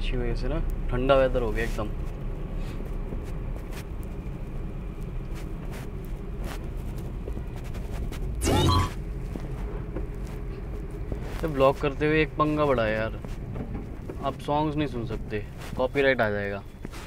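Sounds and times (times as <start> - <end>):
car road and engine rumble: 0.0 - 17.0
faint rain ticks: 0.6 - 8.4, 9.5 - 16.3
brief wavering pitched sound: 8.4 - 9.0.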